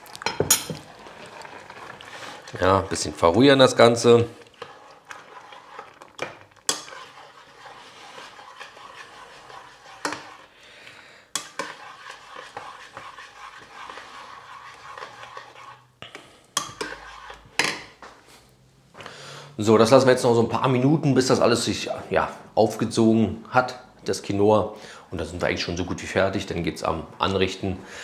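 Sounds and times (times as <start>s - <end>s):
spoon scraping in a pot: 0.2s - 10.6s, 11.3s - 17.9s.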